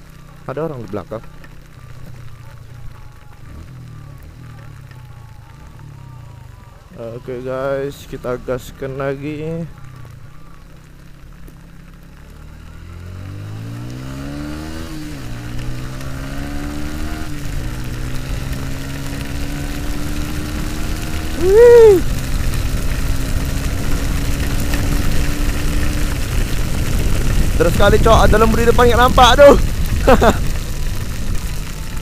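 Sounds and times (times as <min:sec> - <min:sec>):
motorcycle engine accelerating: 0:00.0 - 0:32.0
wet road noise: 0:00.0 - 0:32.0
wind rush: 0:24.8 - 0:31.5.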